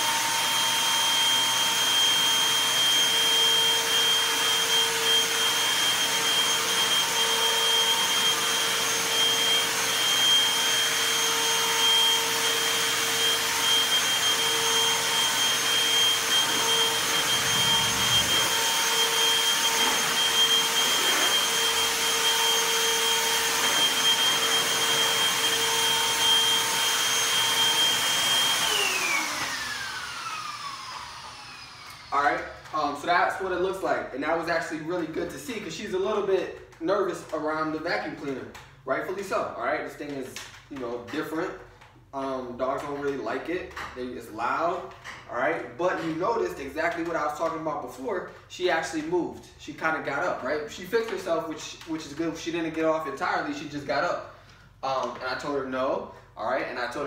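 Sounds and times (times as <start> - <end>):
motor spinning down: 0.0 - 32.7
vacuum cleaner running: 0.0 - 34.0.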